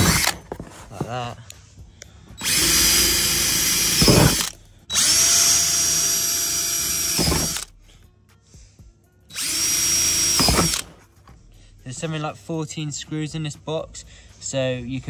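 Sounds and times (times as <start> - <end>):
power drill boring plastic: 0.0 - 0.6, 2.4 - 7.7, 9.3 - 10.9.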